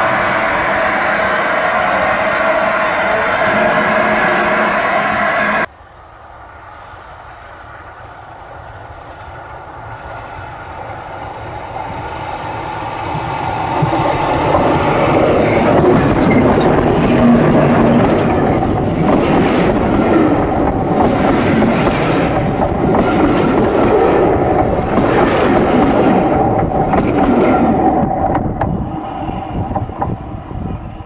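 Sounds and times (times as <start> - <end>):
steam locomotive approaching: 0.0 - 31.0
wheels clattering on rails: 11.8 - 30.4.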